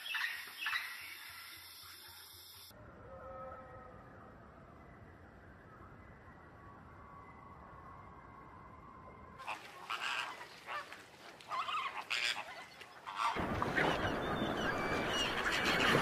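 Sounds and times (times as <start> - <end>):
waterbirds honking: 9.4 - 16.0.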